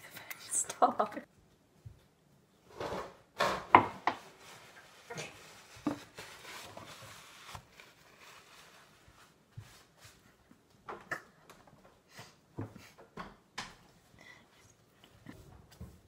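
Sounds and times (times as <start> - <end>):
rustling: 4.2 - 10.4.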